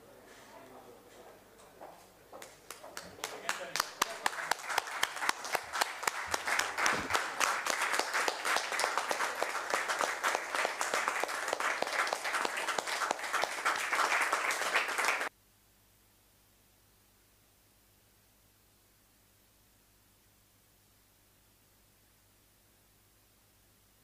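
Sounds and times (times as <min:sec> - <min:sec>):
people clapping: 0:02.4 - 0:15.3.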